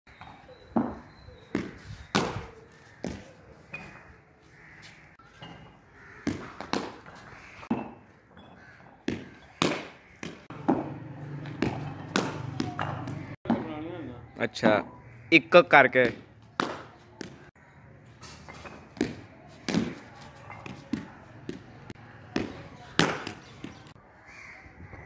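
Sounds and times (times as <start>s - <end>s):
ball bouncing on stone floor: 0.2s - 4.0s, 4.8s - 13.8s, 15.9s - 17.6s, 18.2s - 24.0s
bat striking ball: 6.2s - 7.1s, 9.1s - 13.7s, 16.0s - 17.4s, 22.4s - 23.8s.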